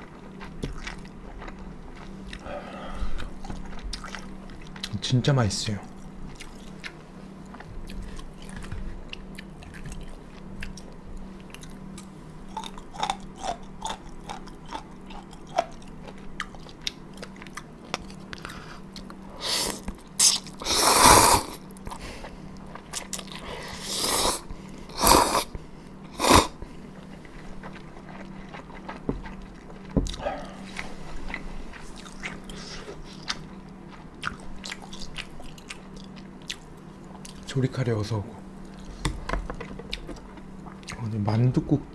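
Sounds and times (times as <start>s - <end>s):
loud noodle slurps: 19.4s - 21.6s, 23.8s - 24.4s, 25.0s - 25.5s, 26.2s - 26.6s
wet chewing clicks: 27.0s - 37.5s.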